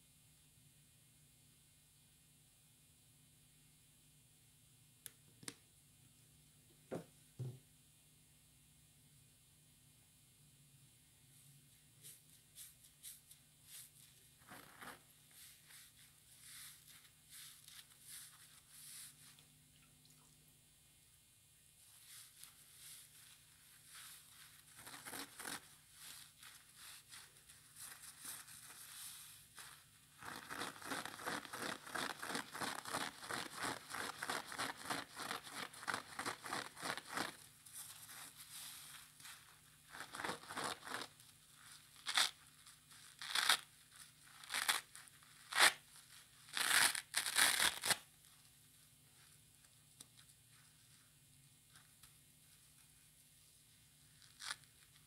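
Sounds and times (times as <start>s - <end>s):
wet sponge crackling: 12.0s - 19.4s, 21.9s - 48.1s
sponge ripping: 23.8s - 45.8s, 46.4s - 48.1s.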